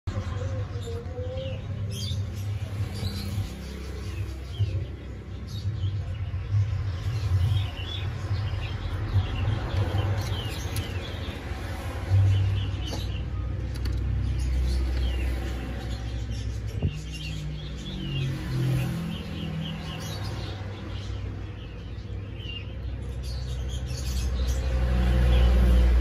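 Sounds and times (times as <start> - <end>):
steady low rumble: 25.4 - 26.0.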